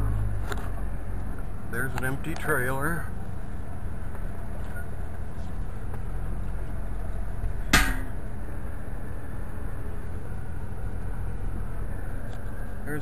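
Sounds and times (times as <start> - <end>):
road noise: 0.0 - 13.0
vehicle engine rumble: 0.0 - 13.0
sharp knock: 7.7 - 8.2.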